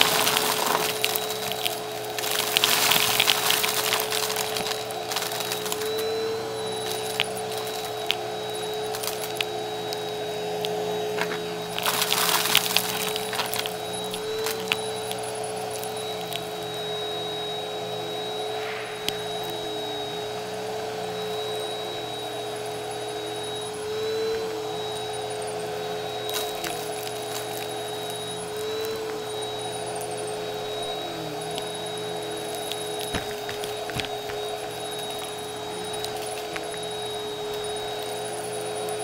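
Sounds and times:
burst of crunching: 0.0 - 16.5, 26.3 - 29.3, 30.6 - 38.2
debris crackling in vacuum: 0.0 - 16.9, 23.8 - 39.0
vacuum cleaner motor whine: 0.0 - 39.0.

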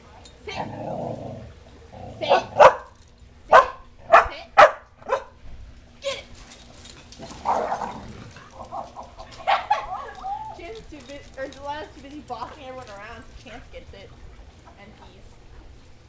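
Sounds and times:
dogs barking in play: 0.5 - 5.4, 6.6 - 11.0.

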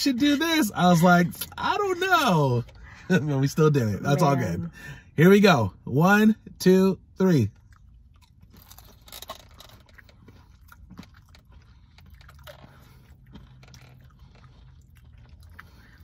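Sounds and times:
low steady hum: 0.0 - 16.0
crunchy taco shells being chewed: 7.3 - 16.0.

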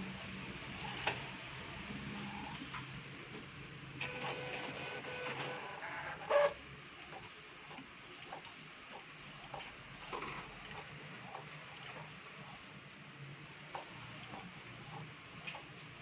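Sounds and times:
loud printer clunk: 4.0 - 6.5
printer motor whine: 4.0 - 8.5.

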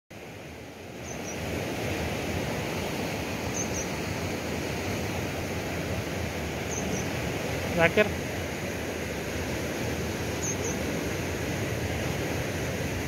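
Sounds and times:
fast-flowing canal water: 0.2 - 13.0
faint high double chirp: 1.0 - 1.4, 3.5 - 3.9, 6.7 - 7.2, 10.4 - 10.8.

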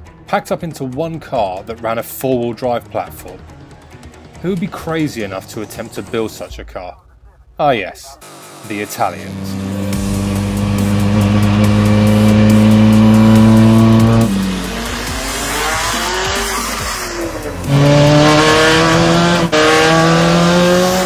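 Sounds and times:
car engine accelerating hard: 8.2 - 21.0.

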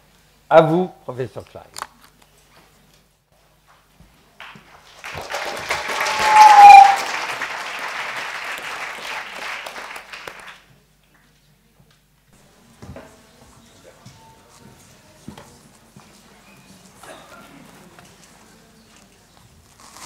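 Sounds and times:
audience applauding: 4.4 - 10.7
brief rising tone: 6.1 - 7.0.

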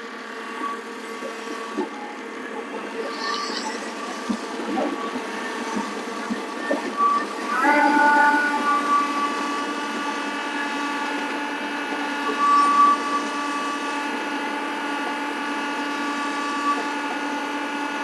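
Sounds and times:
steady high whine: 0.0 - 18.0
tractor diesel engine running: 7.3 - 12.4.

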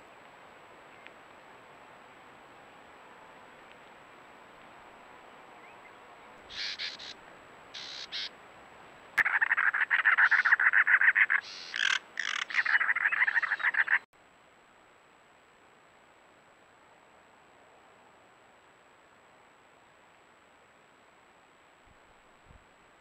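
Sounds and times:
faint hiss: 0.0 - 9.2, 14.2 - 23.0
short high bird calls: 5.6 - 7.2, 7.8 - 8.3, 9.2 - 14.0
wren singing harsh grating notes: 6.5 - 7.2, 7.8 - 8.3, 9.2 - 14.0.

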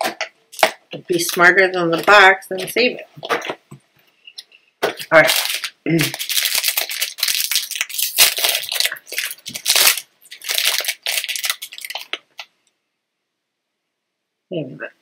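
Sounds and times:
plastic wrapper crinkling and tearing: 4.8 - 12.5.

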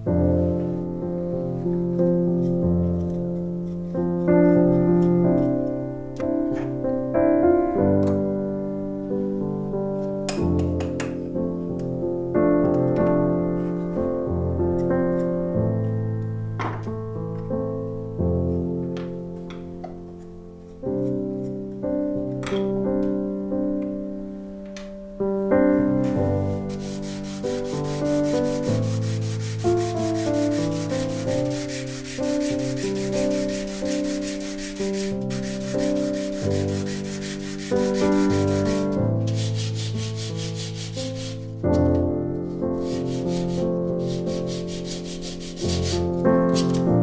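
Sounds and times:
soft piano music: 0.0 - 47.0
metal blade scrubbing sandpaper: 26.7 - 41.4, 42.8 - 46.8.

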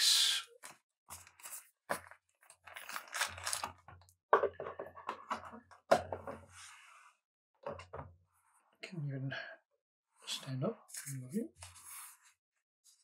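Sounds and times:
foil packs crinkling: 1.2 - 3.8.

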